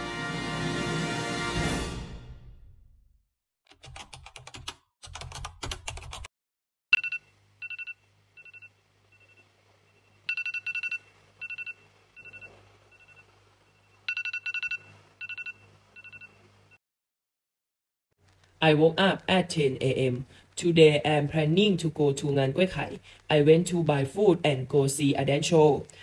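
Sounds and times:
phone alarm beeping: 7.0 - 16.4.

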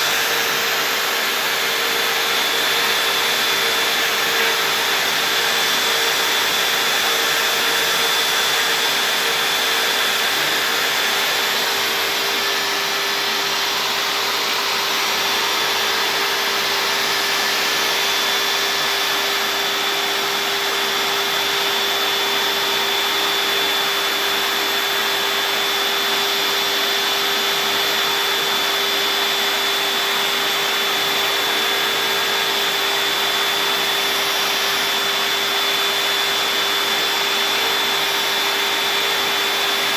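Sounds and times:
dust extraction suction rush: 0.0 - 20.6
router spindle whining: 0.0 - 39.9.

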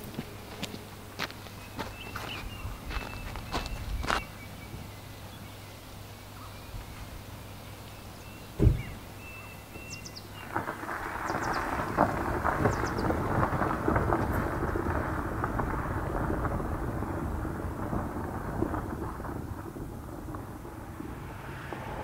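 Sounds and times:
dense steady crackling: 0.0 - 22.0
sudden low boom: 17.9 - 22.0.

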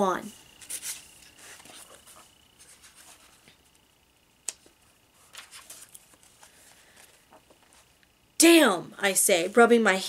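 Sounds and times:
faint high-pitched whine: 0.0 - 10.0
book pages rustling: 0.6 - 3.6, 4.6 - 7.9.

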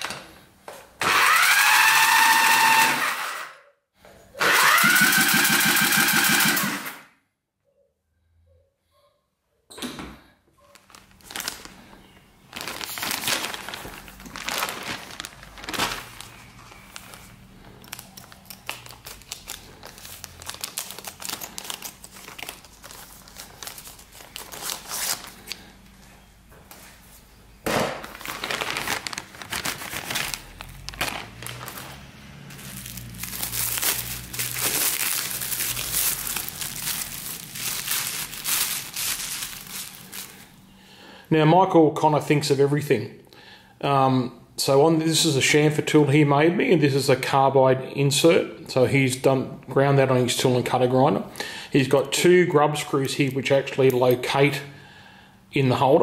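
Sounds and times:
bubble wrap crinkling: 10.6 - 25.8, 28.0 - 40.7.

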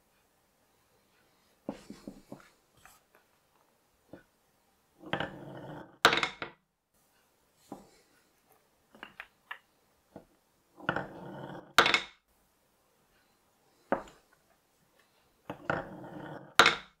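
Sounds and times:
marble clacking into wooden bowl: 6.0 - 6.6, 10.8 - 12.2, 15.5 - 17.0
marbles rolling down wooden chute: 15.5 - 16.9.

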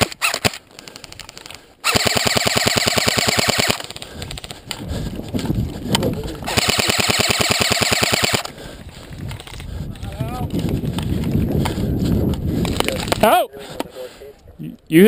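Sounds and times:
airsoft rifle full auto bursts: 1.4 - 4.0, 6.5 - 8.5.

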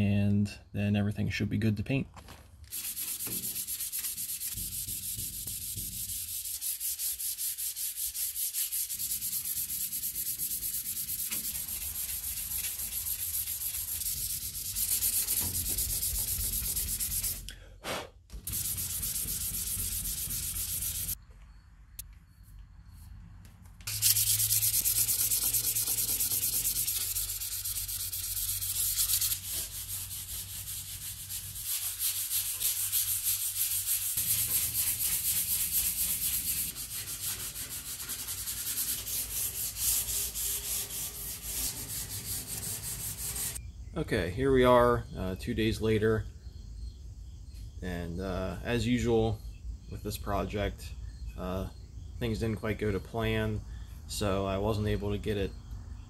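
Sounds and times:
sandpaper rubbing on putty: 2.7 - 17.5, 18.4 - 21.2, 23.9 - 43.6.

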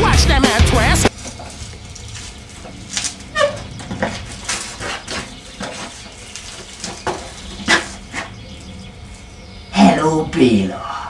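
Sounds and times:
bike clattering on concrete: 1.1 - 8.7.

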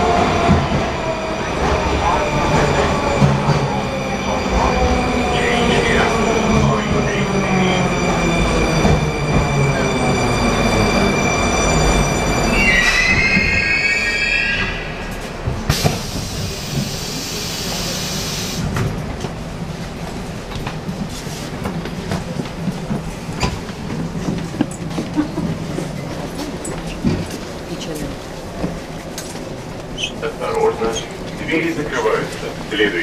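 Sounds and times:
train high whining tones: 0.0 - 18.7.

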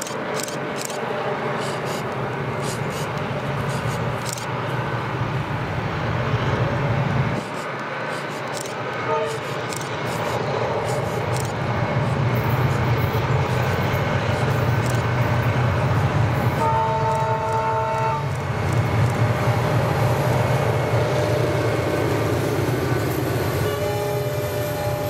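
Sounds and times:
locomotive engine drone: 0.0 - 25.0
distant train horn: 8.9 - 9.7, 16.4 - 18.4, 20.1 - 22.1, 23.4 - 25.0.

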